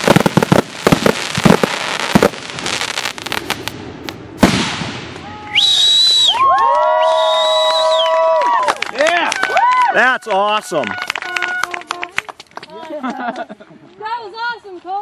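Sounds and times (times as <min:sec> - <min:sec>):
firework bang: 0:00.0 - 0:05.4
fireworks bursting and crackling: 0:00.0 - 0:08.0
people whooping: 0:05.2 - 0:11.9
shrill whistle: 0:05.5 - 0:08.2.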